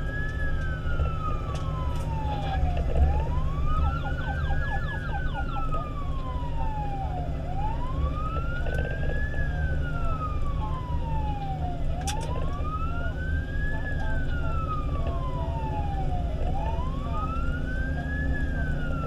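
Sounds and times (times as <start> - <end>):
fire engine siren wailing: 0.0 - 19.0
road noise: 0.0 - 19.0
truck engine rumble: 0.0 - 19.0.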